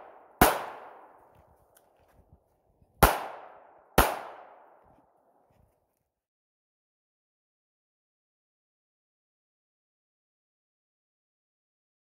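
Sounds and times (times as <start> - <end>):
pistol shots echoing: 0.0 - 1.2, 3.0 - 4.8.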